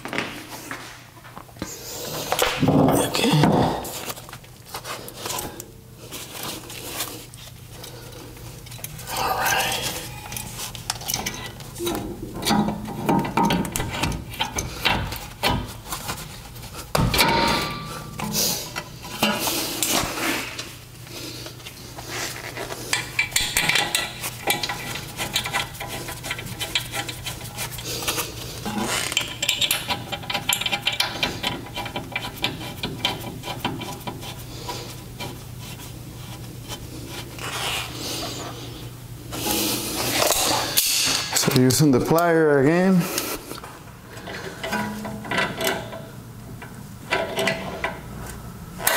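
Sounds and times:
metallic clinking of brake parts: 0:08.6 - 0:15.7.

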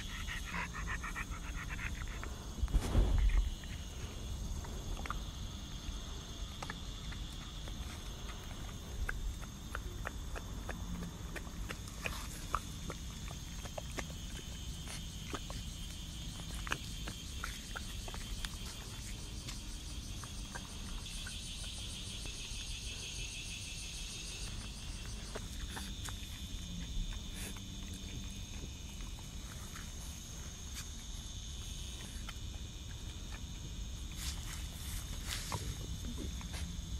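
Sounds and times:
dog chewing grass: 0:00.0 - 0:22.7, 0:24.2 - 0:36.9
insects chirring: 0:00.0 - 0:36.9.

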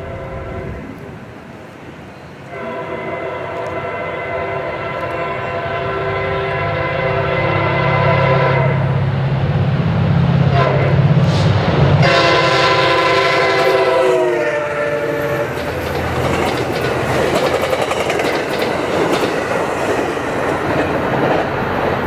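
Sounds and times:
train air horn blasts: 0:00.0 - 0:01.1, 0:02.5 - 0:09.0, 0:10.5 - 0:11.4, 0:12.0 - 0:15.7
locomotive engine and wheels rumbling: 0:00.0 - 0:22.0.

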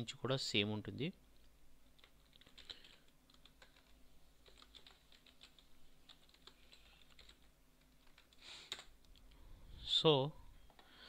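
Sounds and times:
faint typing on keyboard: 0:01.3 - 0:09.4, 0:10.6 - 0:11.0.

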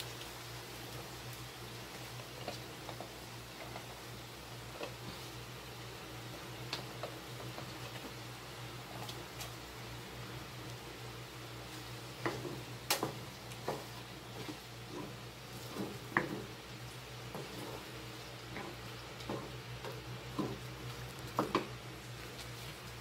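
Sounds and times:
steady low hum: 0:00.0 - 0:23.0
spatula stirring thick sauce: 0:11.6 - 0:23.0
spatula knocking and scraping pan: 0:11.7 - 0:21.9.

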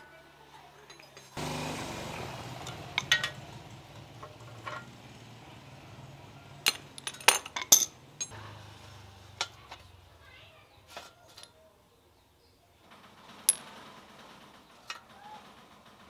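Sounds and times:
hand tools clinking: 0:00.7 - 0:01.4, 0:02.6 - 0:05.0, 0:06.5 - 0:08.4.

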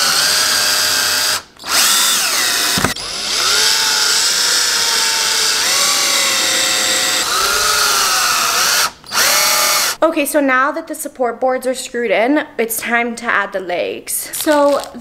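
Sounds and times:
power drill driving screws: 0:00.0 - 0:10.0.

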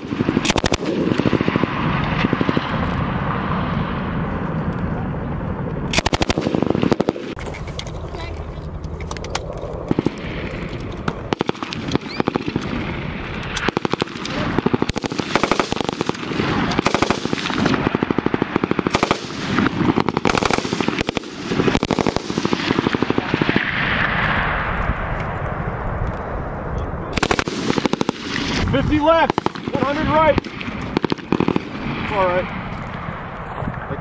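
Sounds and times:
distant gunfire bursts: 0:00.0 - 0:02.7, 0:05.9 - 0:07.4, 0:11.2 - 0:23.9, 0:27.2 - 0:32.1
machine gun bursts: 0:05.9 - 0:07.2, 0:13.6 - 0:23.5.

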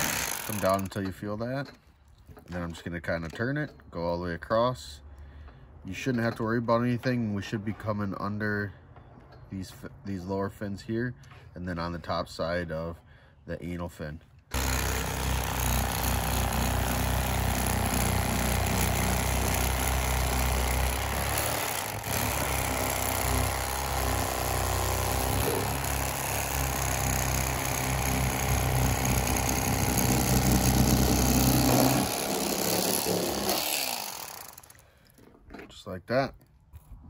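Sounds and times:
electric knife motor buzzing: 0:00.0 - 0:00.6, 0:14.5 - 0:34.8.

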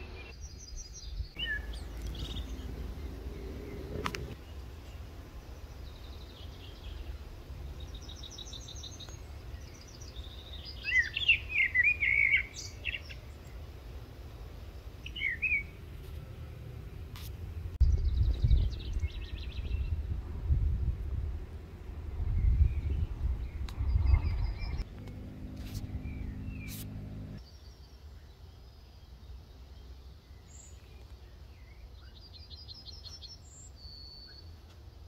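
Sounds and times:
songbirds singing: 0:00.0 - 0:17.1, 0:17.8 - 0:20.2, 0:21.7 - 0:34.8
low rumble: 0:17.5 - 0:27.4.

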